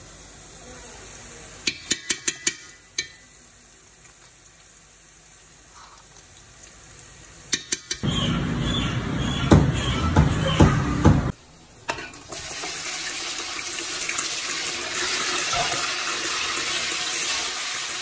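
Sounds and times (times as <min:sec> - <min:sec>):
faint sizzle: 0:00.0 - 0:08.6, 0:11.3 - 0:18.0
metal spoon clanking on pot: 0:01.7 - 0:03.2.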